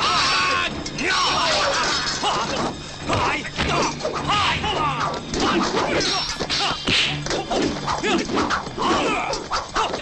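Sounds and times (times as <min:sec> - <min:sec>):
fighters shouting: 0:00.0 - 0:06.9
film score music: 0:00.0 - 0:10.0
weapons clashing: 0:00.0 - 0:10.0.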